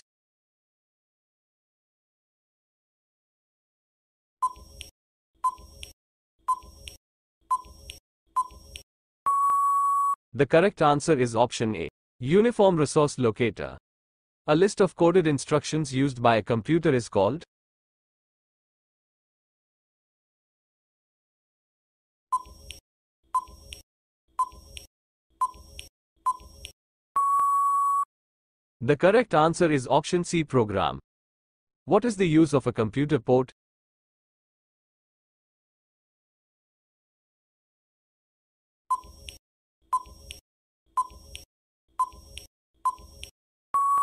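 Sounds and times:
short timer beeps with clicks: 4.4 - 10.2, 22.4 - 22.8, 23.4 - 23.8, 24.4 - 28.0, 38.9 - 40.4, 41.0 - 44.0
long steady beep: 9.3 - 10.2, 27.2 - 28.1, 43.8 - 44.0
short countdown beeps: 9.3 - 10.2, 27.2 - 28.1, 43.8 - 44.0.

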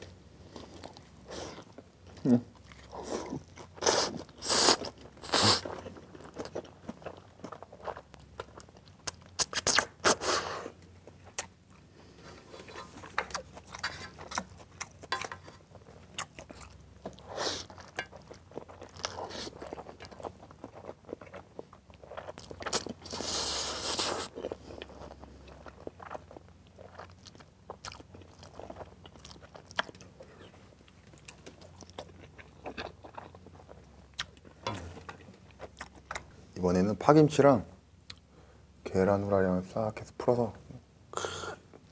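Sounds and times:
wet chewing: 12.6 - 36.4
slurping noodles: 23.1 - 24.3.

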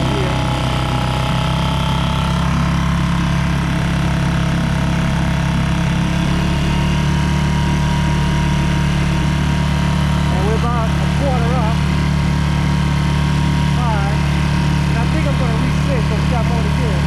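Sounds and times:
outboard motor running: 0.0 - 17.0.

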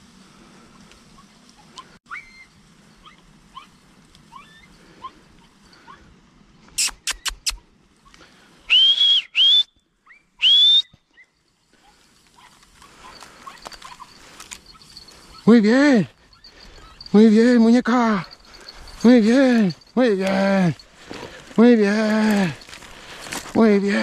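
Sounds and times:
loud high whistles: 8.7 - 9.8, 10.4 - 11.0.

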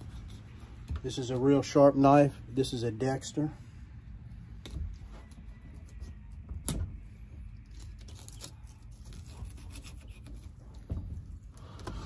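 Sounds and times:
knife scraping turtle shell: 0.0 - 0.8, 7.6 - 10.9.

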